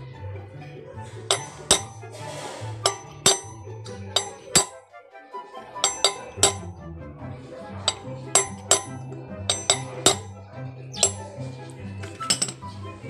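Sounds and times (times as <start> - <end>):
background music: 0.0 - 13.0
hammer tapping metal socket: 1.3 - 2.1, 2.8 - 4.8, 5.8 - 6.7, 7.8 - 10.4, 11.0 - 11.4, 12.2 - 12.6.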